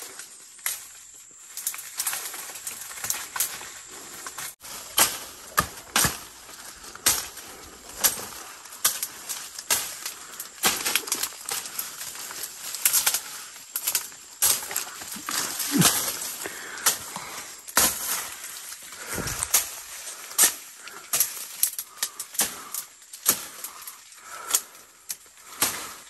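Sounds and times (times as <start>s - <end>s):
twigs and branches snapping: 0.2s - 26.0s
footsteps crunching through leaves: 1.4s - 20.9s.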